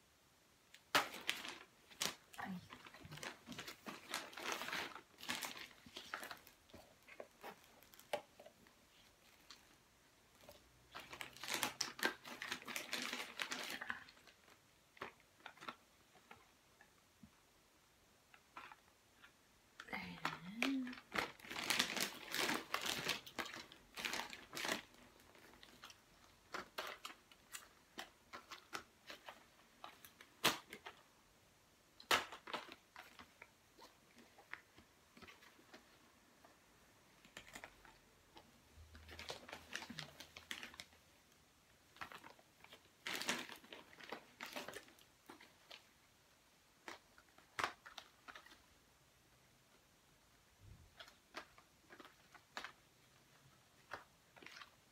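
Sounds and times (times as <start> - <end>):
plastic mailer bag rustling: 0.9 - 9.7, 10.4 - 16.4, 20.6 - 31.0, 38.9 - 40.9, 41.9 - 45.9.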